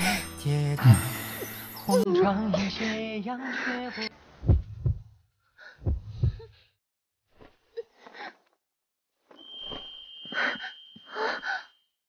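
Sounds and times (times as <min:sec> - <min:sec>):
person sighing and gasping: 0:00.0 - 0:01.6
deep heartbeat thumps: 0:04.4 - 0:05.2, 0:05.8 - 0:06.6
high steady ringing tone: 0:09.4 - 0:12.0.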